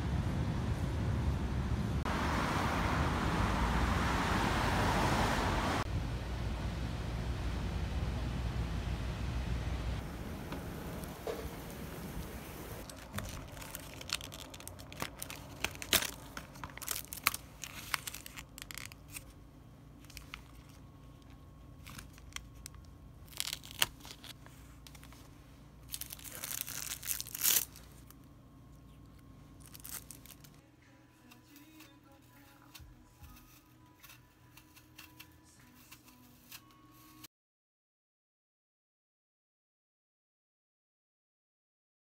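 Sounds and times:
plastic film seal peeling: 12.8 - 19.4, 21.8 - 25.1, 25.9 - 27.8.

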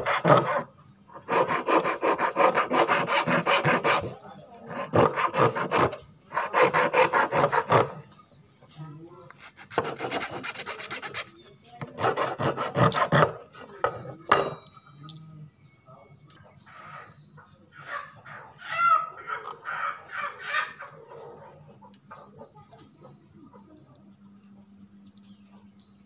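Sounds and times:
file rasping on wood: 0.0 - 8.0, 9.4 - 14.2.

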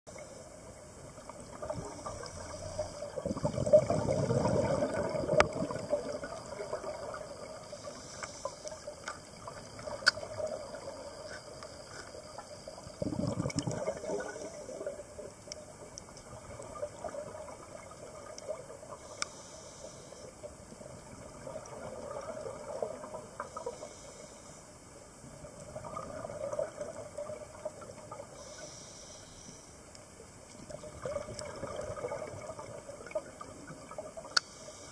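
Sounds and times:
exhaled bubbles rumbling: 0.6 - 19.1, 20.7 - 23.7, 25.2 - 28.4, 30.5 - 34.4
diver breathing through regulator: 1.9 - 3.4, 28.4 - 29.8.

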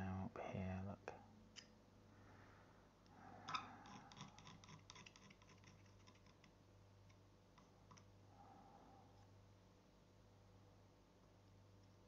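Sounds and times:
palette knife scraping paint: 3.5 - 6.5.

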